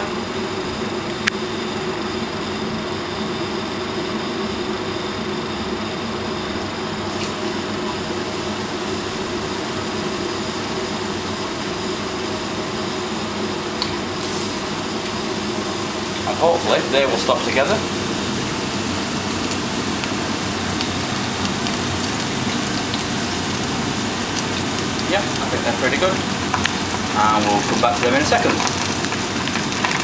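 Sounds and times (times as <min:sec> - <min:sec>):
extraction fan humming: 0:00.0 - 0:30.0
food deep frying in oil: 0:07.0 - 0:30.0.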